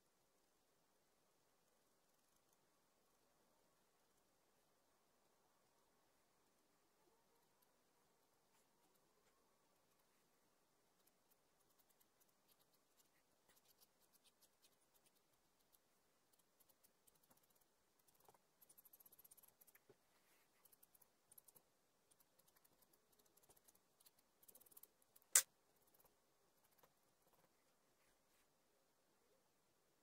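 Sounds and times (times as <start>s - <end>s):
pencil scratching on paper: 11.0s - 27.6s.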